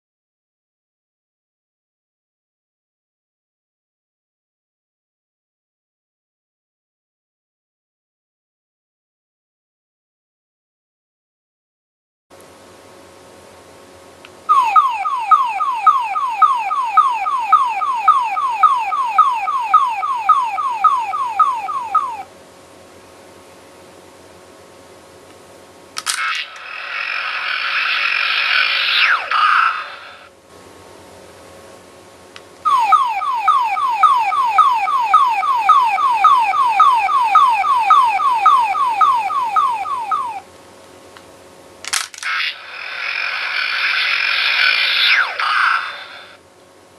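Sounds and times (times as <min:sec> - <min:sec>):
toy electronic falling chirps: 0:14.5 - 0:22.3, 0:32.7 - 0:40.4.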